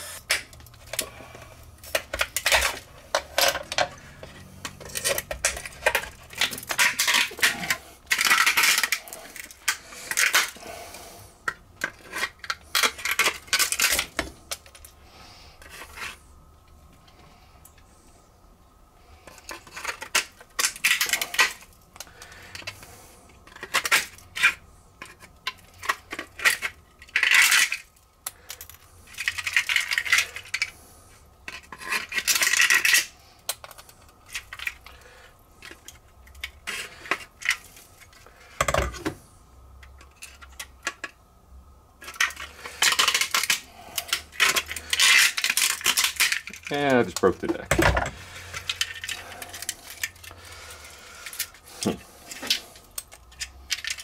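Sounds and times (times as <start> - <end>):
pliers scraping inside plastic: 31.5 - 35.0.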